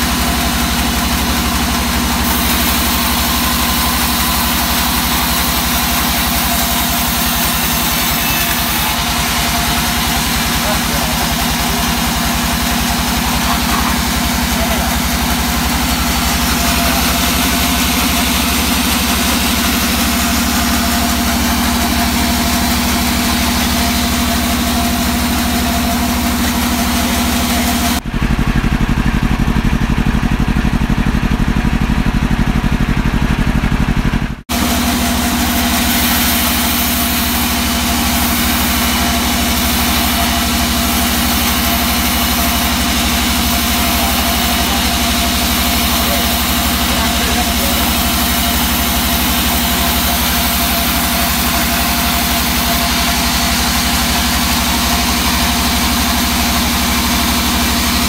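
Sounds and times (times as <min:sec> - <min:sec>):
saw blade hiss: 0:00.0 - 0:28.0, 0:34.5 - 0:58.0
band sawmill running: 0:00.0 - 0:58.0
deep bass logo sting: 0:28.0 - 0:35.4.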